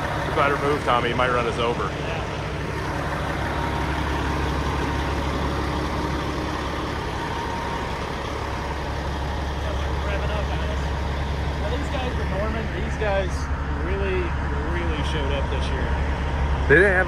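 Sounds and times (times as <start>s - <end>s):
truck diesel engine running: 0.0s - 17.0s.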